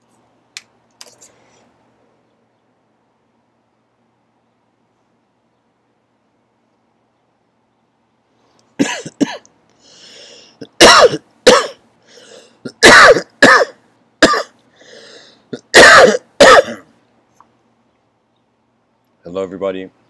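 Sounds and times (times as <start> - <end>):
person coughing hard: 8.8 - 9.4, 10.6 - 11.8, 12.7 - 14.6, 15.5 - 16.9.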